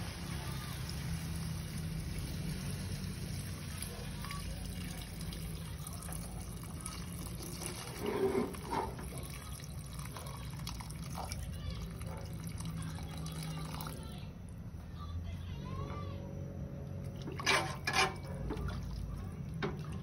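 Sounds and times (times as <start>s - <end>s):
water pouring into wok: 0.0s - 14.2s.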